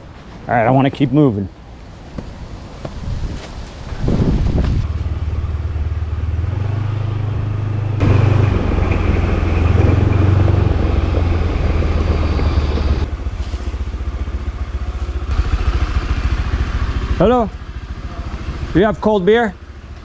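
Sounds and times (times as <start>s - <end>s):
wind and road hiss: 0.0s - 20.0s
scooter engine accelerating: 4.7s - 20.0s.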